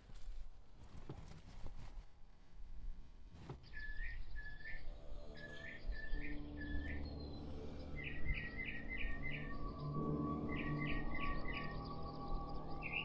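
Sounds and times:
bird whistling song: 3.6 - 13.0.

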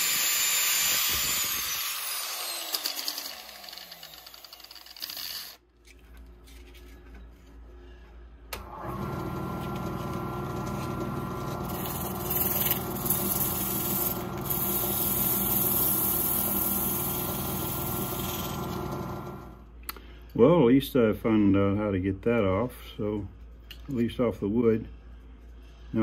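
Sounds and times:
wood lathe motor hum: 0.0 - 5.6, 8.6 - 19.6
sandpaper hissing on turning wood: 11.8 - 18.6.

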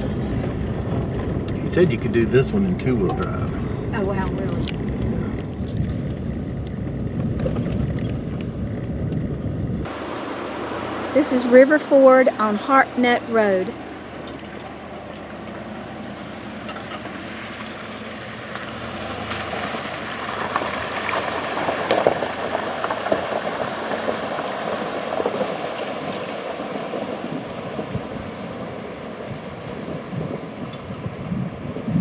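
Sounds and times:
water rushing and splashing: 9.8 - 32.0
truck driving through river: 9.9 - 32.0.

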